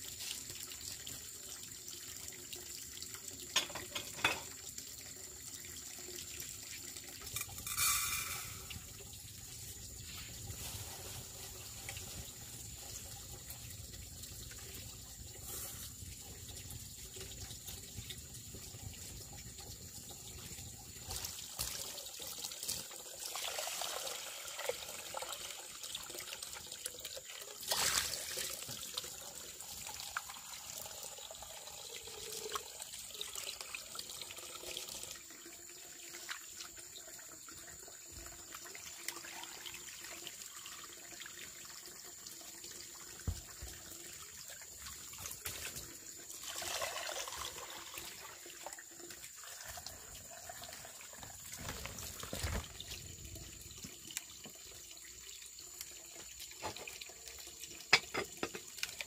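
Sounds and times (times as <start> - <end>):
water running from a tap: 0.0 - 59.0.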